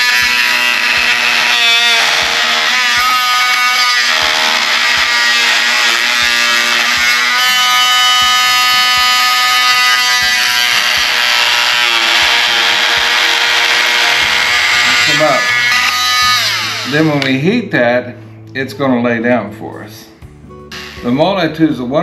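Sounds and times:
multi-tool cutting plastic: 0:00.0 - 0:17.4.

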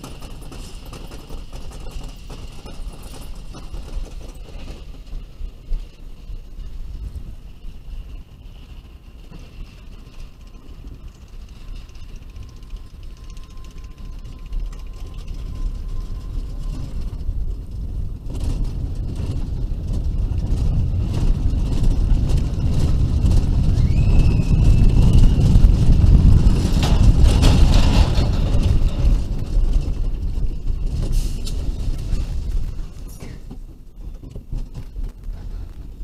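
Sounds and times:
roller coaster wheels rumbling: 0:00.0 - 0:36.0.

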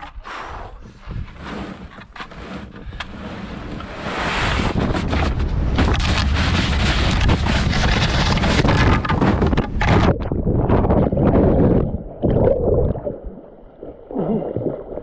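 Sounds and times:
kayak hull scraping on gravel: 0:00.4 - 0:10.1
wind on microphone: 0:00.7 - 0:13.0
grit and stones crackling: 0:00.9 - 0:11.9.

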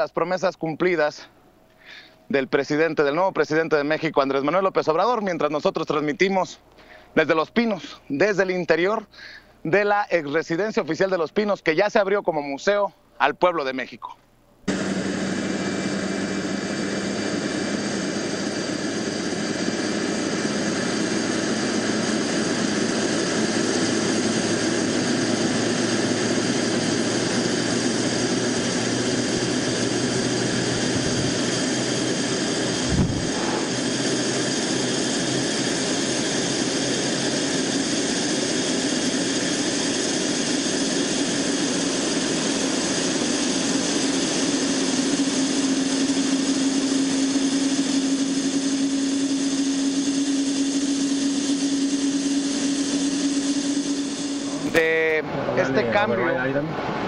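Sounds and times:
jet engines running: 0:14.7 - 0:57.0.

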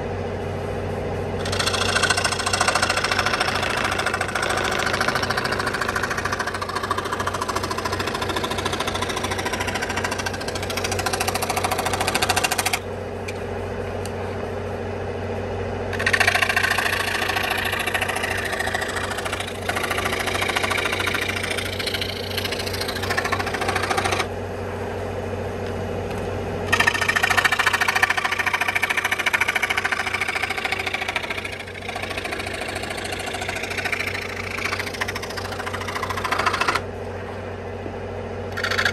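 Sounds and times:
motor hum: 0:00.0 - 0:38.9
scroll saw cutting wood: 0:01.4 - 0:12.8, 0:15.9 - 0:24.3, 0:26.7 - 0:36.8, 0:38.5 - 0:38.9.

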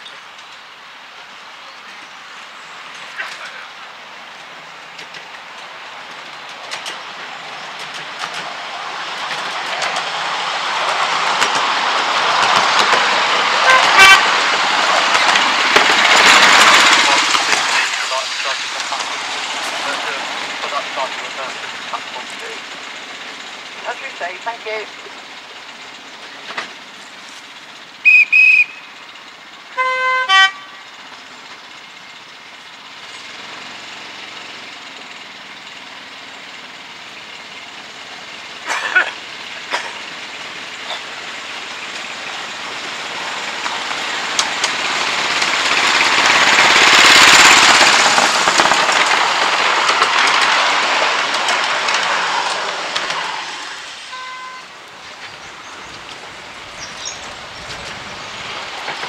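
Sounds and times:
miniature train engine and wheels: 0:00.0 - 0:59.0
short horn toots: 0:13.6 - 0:14.4, 0:29.7 - 0:30.9, 0:54.1 - 0:54.8.

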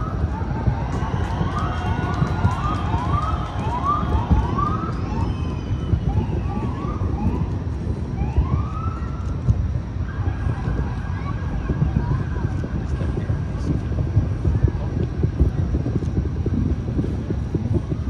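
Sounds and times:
emergency siren wailing: 0:00.0 - 0:12.7
low background rumble: 0:00.0 - 0:18.0.

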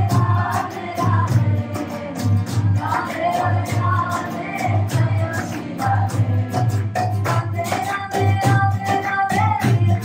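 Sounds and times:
group chanting: 0:00.0 - 0:06.8
guitar: 0:00.0 - 0:10.0
percussion beat: 0:00.0 - 0:10.0
hand claps: 0:03.8 - 0:10.0.

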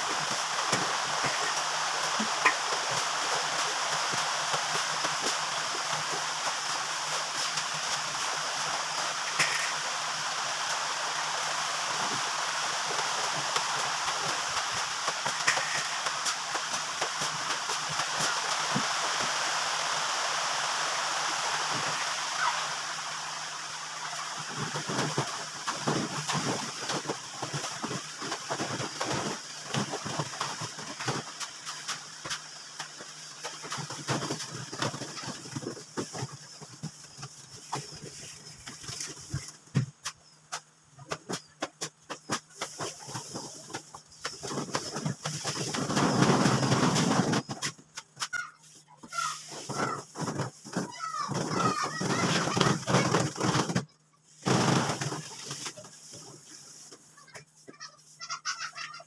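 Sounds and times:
steady rushing noise: 0:00.0 - 0:40.2.

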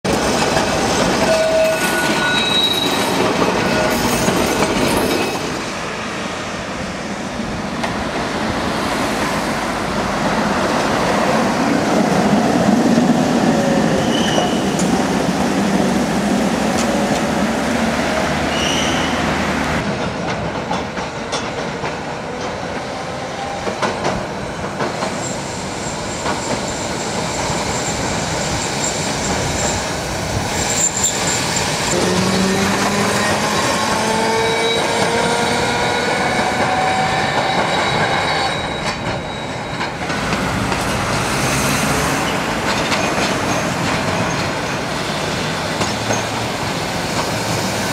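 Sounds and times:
tram wheels rumbling on rails: 0:00.1 - 0:47.9
high wheel squeals: 0:01.2 - 0:03.2, 0:13.9 - 0:14.8, 0:18.4 - 0:19.4, 0:33.6 - 0:40.0.

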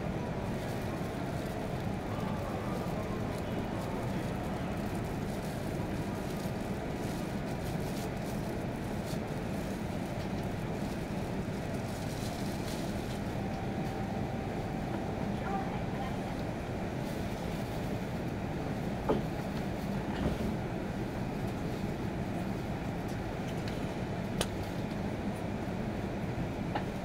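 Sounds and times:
train cabin hum: 0:08.5 - 0:27.0.

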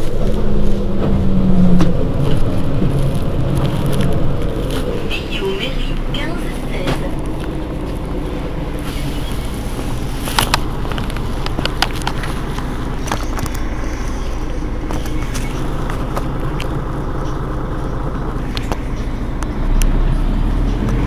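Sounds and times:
bus engine idling: 0:00.0 - 0:21.0.

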